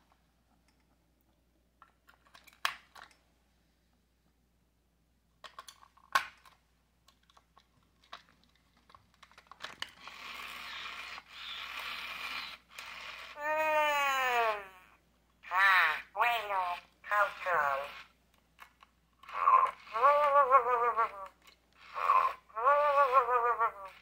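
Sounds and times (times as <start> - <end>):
toy motor whirring: 9.6 - 14.9, 15.6 - 18.2, 19.2 - 24.0.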